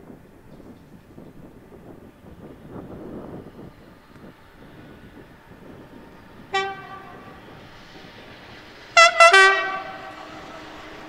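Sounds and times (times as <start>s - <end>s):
two-tone locomotive horn: 6.4s - 7.8s, 8.9s - 11.0s.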